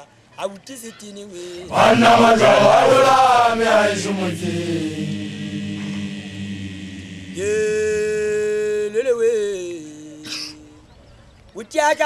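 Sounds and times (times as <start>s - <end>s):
low held voices: 1.4s - 9.0s.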